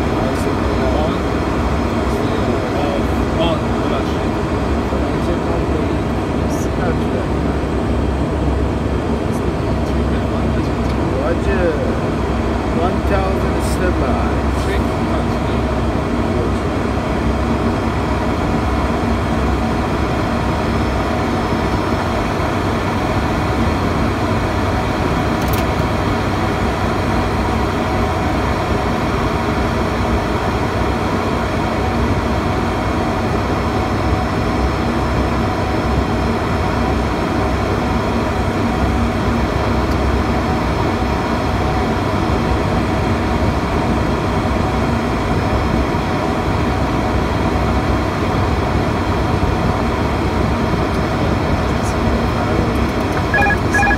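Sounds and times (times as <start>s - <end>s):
constant hum: 0.0s - 43.1s, 49.3s - 53.9s
turboprop engines droning: 0.0s - 53.9s.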